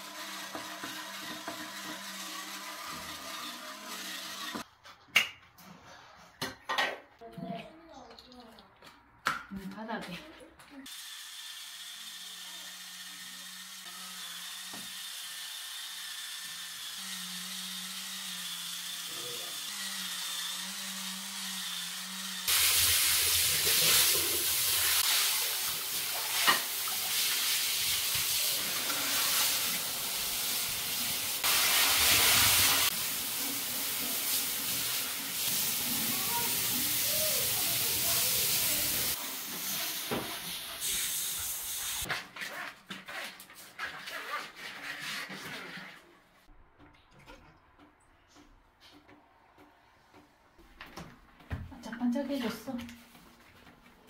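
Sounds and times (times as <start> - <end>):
shower head spraying water: 0.0 - 4.6, 18.6 - 42.1
spin scrubber motor humming: 16.5 - 22.5
brush scrubbing wet tile floor: 22.5 - 46.3.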